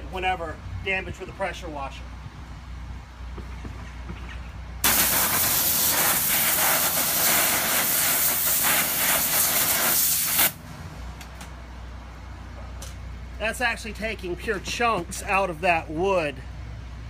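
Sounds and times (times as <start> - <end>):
pressure washer jet hissing: 4.8 - 10.6.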